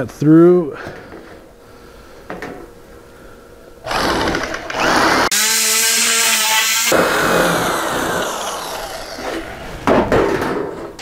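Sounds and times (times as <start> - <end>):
electric nibbler cutting metal: 3.8 - 9.5.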